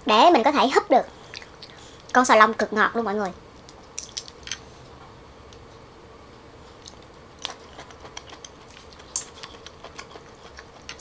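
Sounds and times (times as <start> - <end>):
quiet chewing: 6.7 - 11.0.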